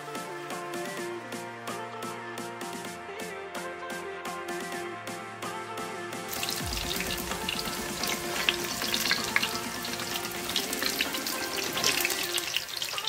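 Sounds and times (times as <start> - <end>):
faint background music: 0.0 - 13.0
deep-frying sizzle in oil: 6.3 - 13.0.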